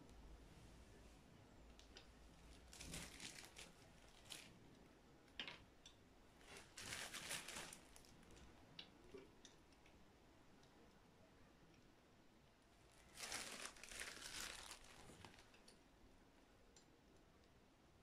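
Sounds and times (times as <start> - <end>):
plastic bag crinkling: 2.5 - 4.6, 6.4 - 8.4, 13.0 - 15.6.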